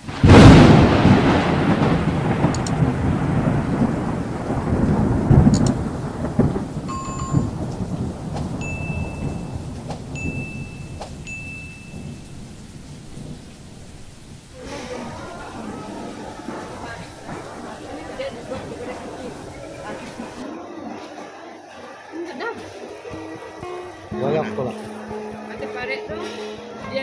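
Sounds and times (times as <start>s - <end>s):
rolling thunder rumble: 0.0s - 20.5s
thunderclap: 0.0s - 20.5s
rain: 0.0s - 27.0s.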